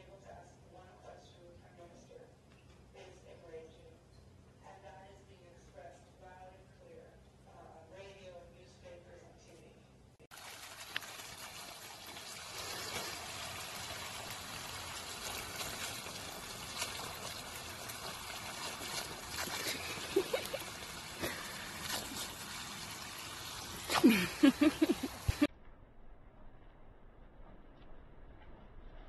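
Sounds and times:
garden hose spraying water: 10.3 - 25.5
dog biting and lapping water: 12.5 - 25.5.

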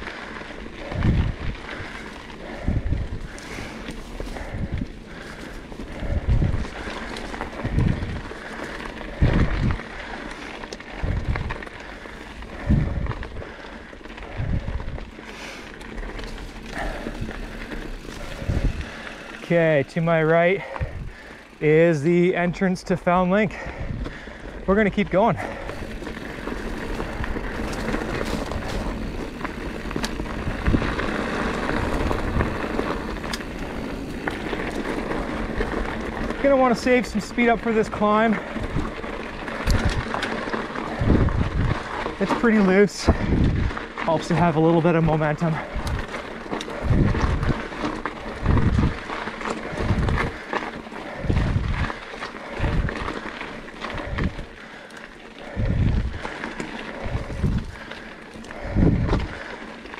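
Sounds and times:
bike tyre noise on dirt: 0.0 - 59.9
wind on microphone: 0.8 - 1.7, 2.4 - 5.0, 6.0 - 6.8, 7.5 - 8.3, 9.1 - 9.8, 11.0 - 11.6, 12.5 - 13.4, 14.3 - 15.1, 16.8 - 19.0, 20.8 - 21.2, 23.6 - 24.2, 40.8 - 42.1, 43.1 - 43.8, 46.7 - 49.0, 49.6 - 50.4, 51.2 - 53.1, 53.9 - 54.5, 55.5 - 56.2, 57.0 - 57.8, 58.6 - 59.4.

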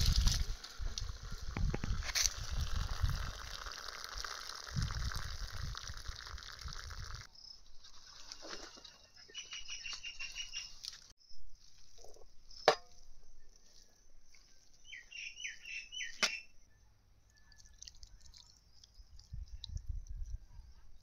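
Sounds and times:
bird chirping: 8.2 - 11.4, 13.2 - 21.0.

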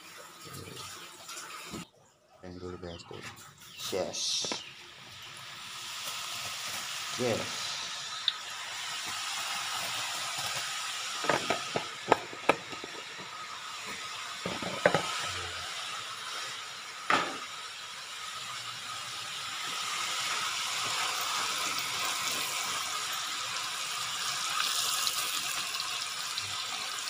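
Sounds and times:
deep-frying sizzle in oil: 3.7 - 27.0.

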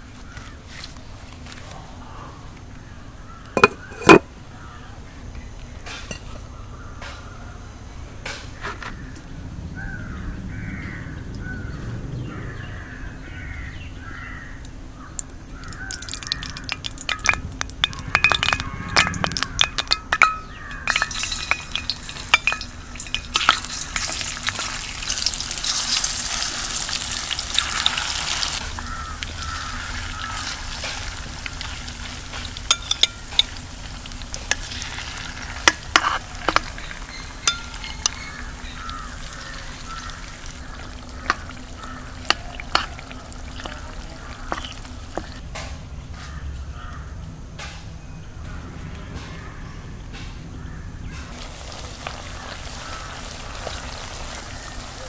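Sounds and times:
bird calling: 2.1 - 5.0, 9.8 - 45.4, 48.4 - 55.0
utensil scraping in pan: 3.6 - 4.2, 15.6 - 28.8, 34.3 - 45.5
fish sizzling in hot oil: 15.2 - 45.4, 51.3 - 55.0.

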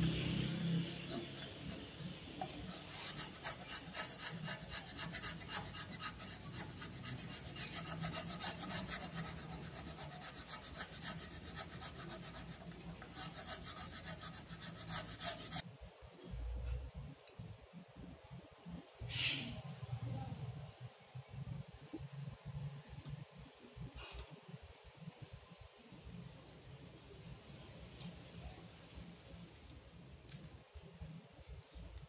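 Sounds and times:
wood chisel scraping wood: 1.0 - 15.6.

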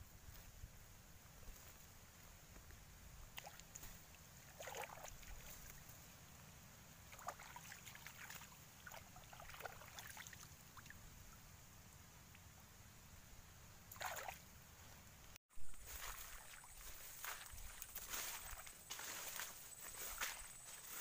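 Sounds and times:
hand splashing pond water: 3.3 - 5.8, 7.0 - 11.0, 13.9 - 14.4, 15.7 - 21.0.

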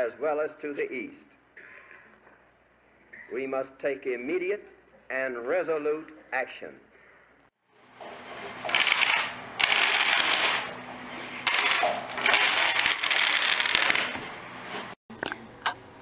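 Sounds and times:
dominoes toppling on wooden table: 8.6 - 10.7, 11.4 - 14.2.

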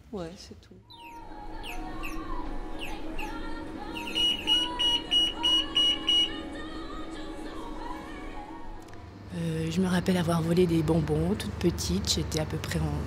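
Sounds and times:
background music: 0.8 - 11.4
security gate alarm beeping: 4.0 - 6.4.

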